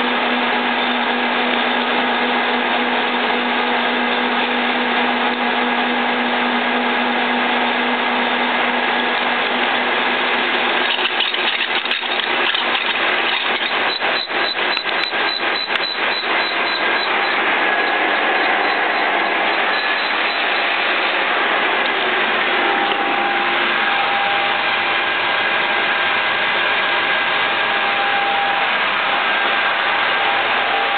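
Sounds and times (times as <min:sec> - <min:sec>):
boring machine drilling steel: 0:00.0 - 0:30.9
pulsing rattle: 0:08.6 - 0:30.9.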